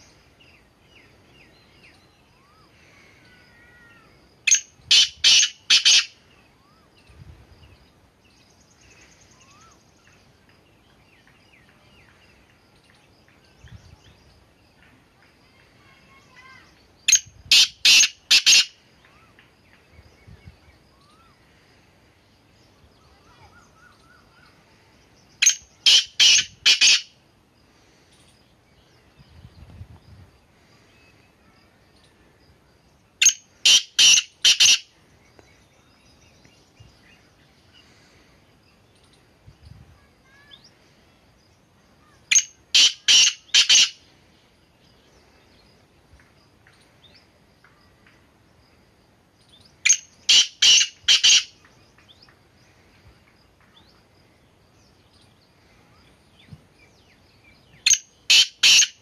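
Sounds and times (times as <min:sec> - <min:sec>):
francolin harsh call: 0:02.4 - 0:06.9, 0:15.8 - 0:19.4, 0:25.4 - 0:27.2, 0:33.2 - 0:35.0, 0:42.0 - 0:44.1, 0:49.8 - 0:51.6, 0:57.9 - 0:59.0.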